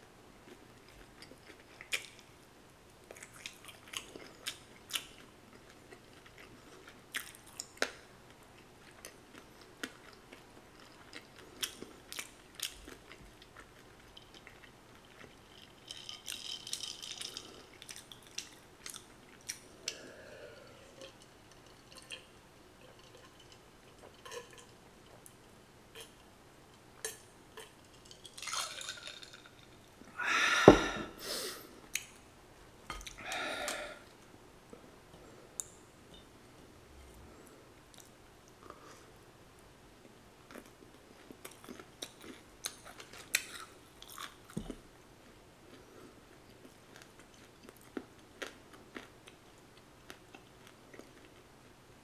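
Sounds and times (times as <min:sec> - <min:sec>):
breathy exhale: 0:19.8 - 0:20.9, 0:30.2 - 0:31.7, 0:33.2 - 0:34.1
person gulping beer: 0:30.1 - 0:31.3.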